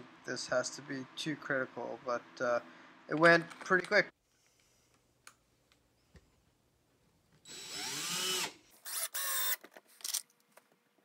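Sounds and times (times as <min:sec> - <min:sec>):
cordless drill driving screws: 0:07.5 - 0:10.2.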